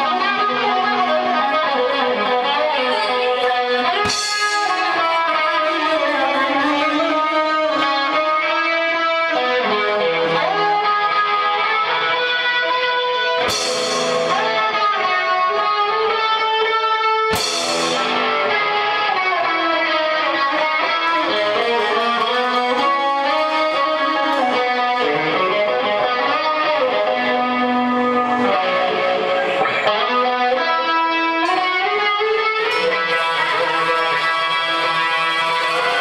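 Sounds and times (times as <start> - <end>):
drums: 0.0 - 36.0
electric guitar melody: 0.0 - 36.0
cymbal crashes: 4.0 - 5.2, 13.4 - 14.6.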